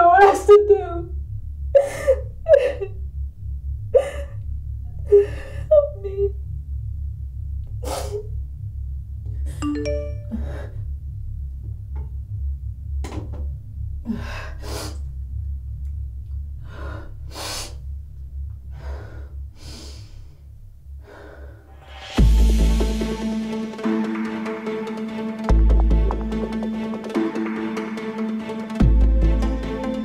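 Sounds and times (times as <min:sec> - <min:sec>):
low droning score music: 0:00.0 - 0:30.0
short chime-like tone: 0:09.6 - 0:10.6
person gasping breaths: 0:21.0 - 0:21.8
loud music: 0:21.8 - 0:30.0.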